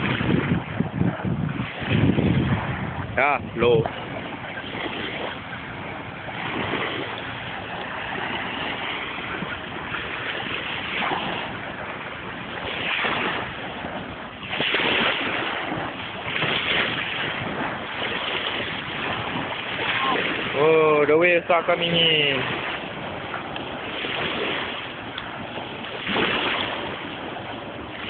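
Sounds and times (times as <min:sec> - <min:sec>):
sea waves washing onto beach: 0:00.0 - 0:28.0.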